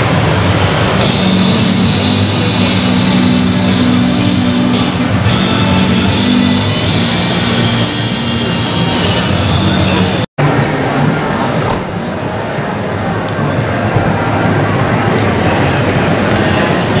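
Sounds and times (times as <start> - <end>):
loud rock music: 0.0 - 10.3.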